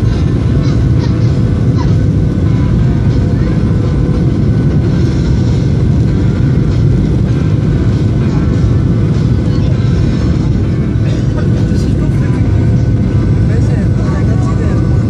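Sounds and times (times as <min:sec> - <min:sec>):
jet engine and air rumble: 0:00.0 - 0:15.0.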